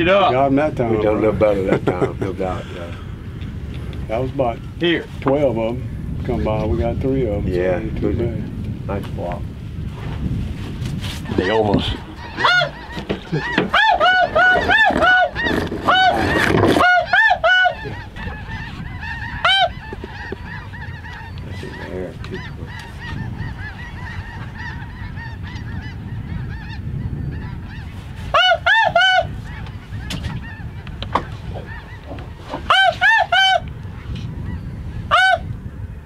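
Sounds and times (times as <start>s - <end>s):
distant geese honking: 11.2s - 35.6s
loud close goose honks: 11.4s - 30.6s, 31.2s - 33.7s, 35.1s - 35.5s.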